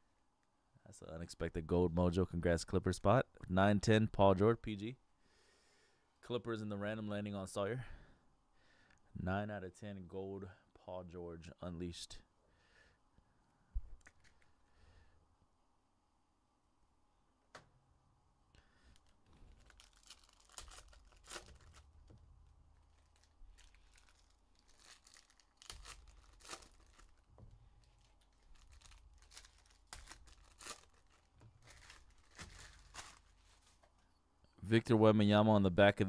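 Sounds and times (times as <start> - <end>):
foil wrapper tearing and crinkling: 18.9 - 33.8.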